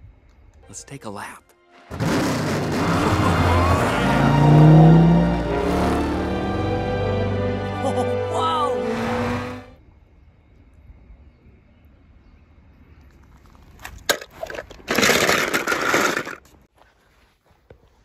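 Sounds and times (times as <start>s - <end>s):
stones rattling and crunching: 13.4s - 16.6s.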